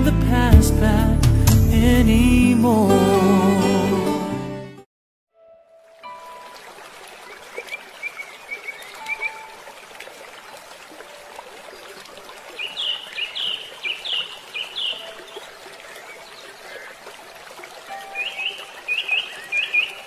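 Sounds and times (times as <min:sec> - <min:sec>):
stream running: 0:05.7 - 0:20.0
birds chirping: 0:07.2 - 0:09.8, 0:11.0 - 0:20.0.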